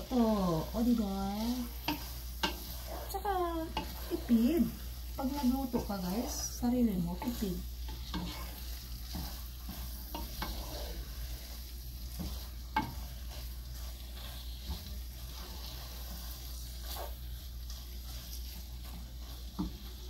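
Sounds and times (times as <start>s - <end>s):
food sizzling: 0.0s - 20.0s
spatula scraping metal pot: 0.1s - 20.0s
spatula knocking pot: 1.4s - 6.6s, 12.0s - 15.9s.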